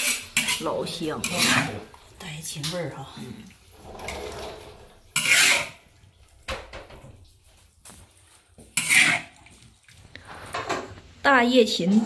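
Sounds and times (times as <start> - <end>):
metal spatula scraping wok: 0.0 - 1.9, 3.8 - 5.9, 8.7 - 9.4.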